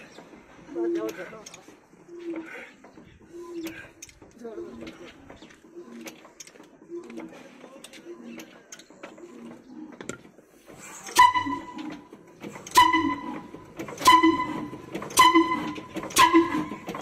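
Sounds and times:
diesel engine starting: 10.5 - 17.0.

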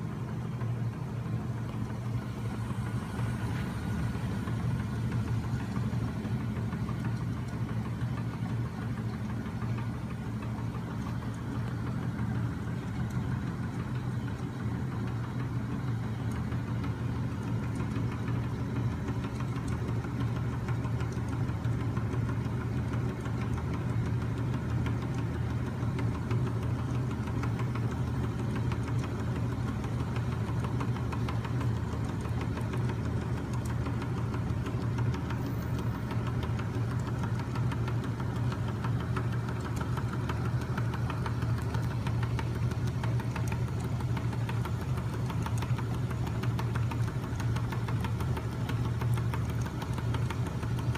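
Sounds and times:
fast mechanical rattle: 0.0 - 50.9
machine low hum: 0.0 - 50.9.

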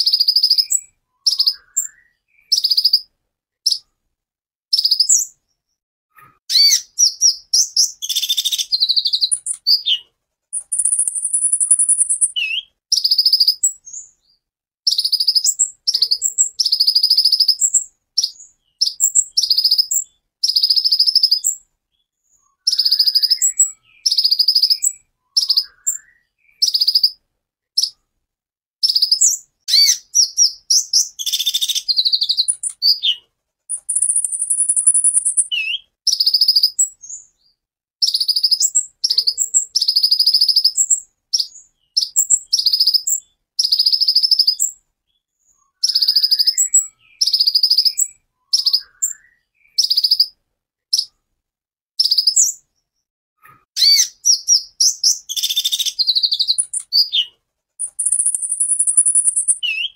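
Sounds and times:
bird high thin trill: 10.6 - 12.4, 33.8 - 35.5, 57.8 - 59.8
sunbird singing sharp notes: 10.6 - 13.6, 33.7 - 36.7, 53.8 - 59.9.

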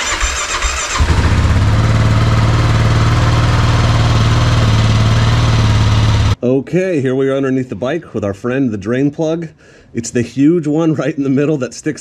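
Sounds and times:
motorcycle engine starting and idling: 0.0 - 6.4.

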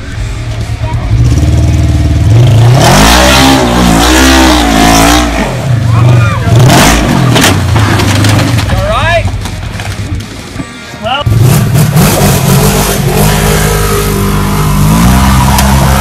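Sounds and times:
engine revving hard: 1.1 - 8.0, 11.3 - 16.0.

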